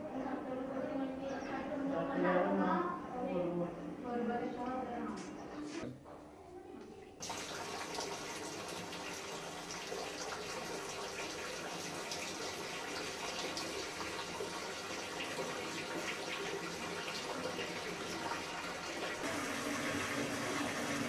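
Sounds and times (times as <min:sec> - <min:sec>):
water running from tap: 0:07.2 - 0:21.0.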